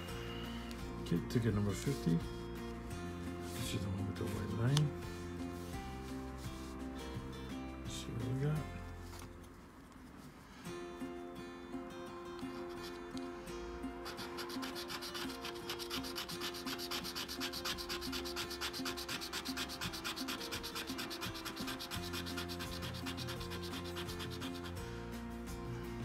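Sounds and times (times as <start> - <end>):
coin scratching ticket: 14.0 - 24.8.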